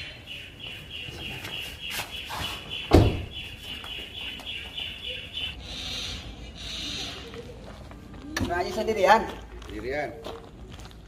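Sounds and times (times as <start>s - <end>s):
high pulsing chirping: 0.0s - 7.2s.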